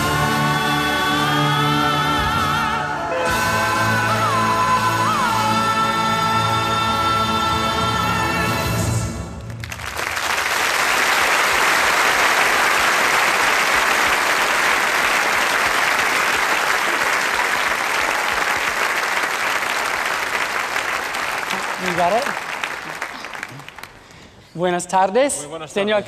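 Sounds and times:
music: 0.0 - 9.8
audience applause: 9.4 - 24.2.

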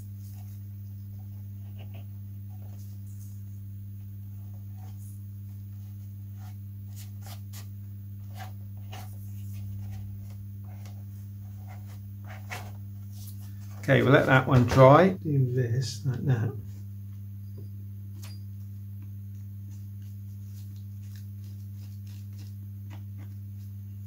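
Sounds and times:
steady low hum: 0.0 - 24.0
tissue paper crinkling: 19.3 - 23.7.

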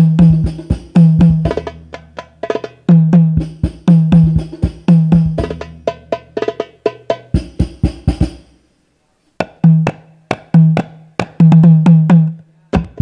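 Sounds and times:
hand-struck frame drums: 0.0 - 8.6.

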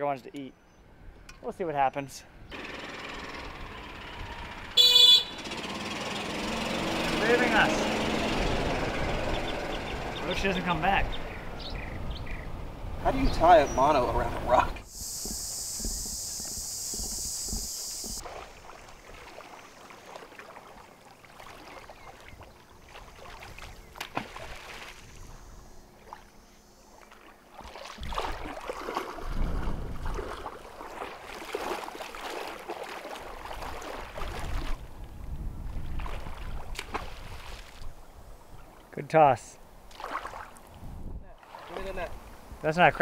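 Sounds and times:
wind buffeting microphone: 8.0 - 18.2, 29.2 - 30.5, 33.4 - 38.7, 40.7 - 42.6
water sloshing on beach: 18.2 - 25.3, 25.9 - 38.9, 39.8 - 42.6.

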